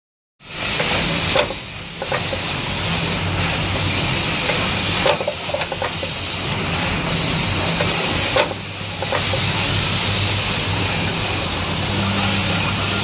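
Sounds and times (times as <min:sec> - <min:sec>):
machine hiss over low hum: 0:00.4 - 0:13.0
sharp clicks and clacks: 0:00.8 - 0:02.6, 0:04.4 - 0:06.2, 0:07.7 - 0:09.5.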